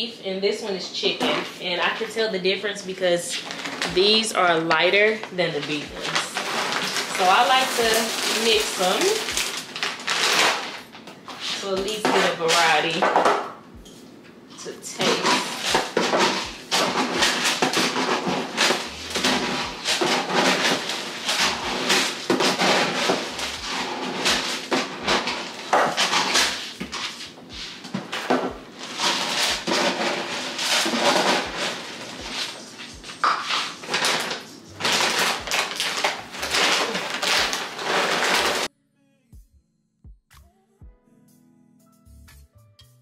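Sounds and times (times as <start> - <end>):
dry kibble pouring into metal bin: 5.7 - 10.8, 33.9 - 38.7
background music with steady beat: 13.4 - 14.5, 18.2 - 19.9, 27.4 - 28.8, 39.2 - 43.0.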